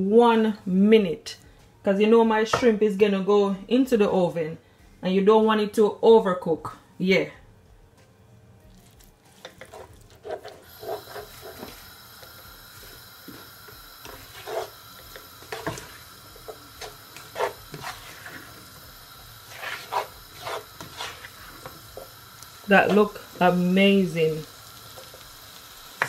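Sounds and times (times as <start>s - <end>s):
faint sizzle: 8.6s - 26.0s
spoon scraping frying pan: 8.9s - 12.4s, 13.3s - 23.2s.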